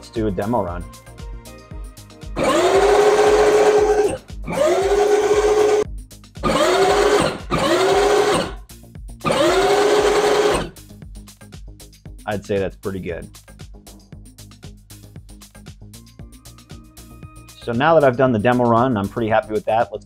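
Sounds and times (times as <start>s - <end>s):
electric motor whining: 2.4s - 5.8s, 6.4s - 8.6s, 9.2s - 10.8s.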